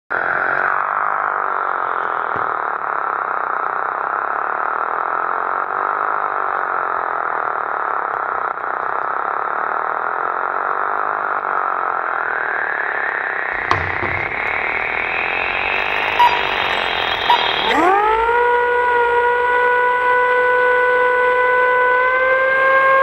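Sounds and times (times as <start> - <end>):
siren wailing: 13.5 - 23.0.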